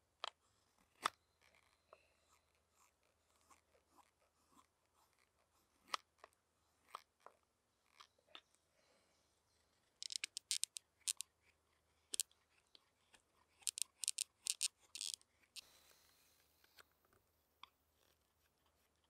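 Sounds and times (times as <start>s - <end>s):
knife carving wood: 2.3s - 7.2s, 10.0s - 15.6s.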